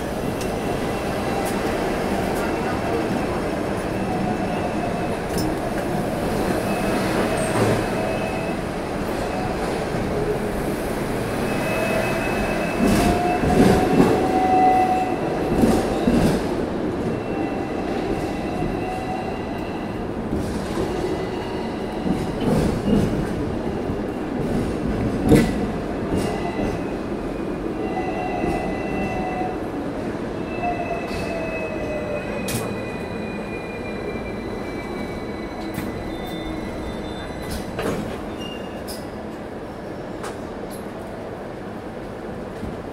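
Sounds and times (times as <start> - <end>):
tram wheels rumbling on rail: 0.0 - 42.9
high wheel squeal: 30.5 - 37.7.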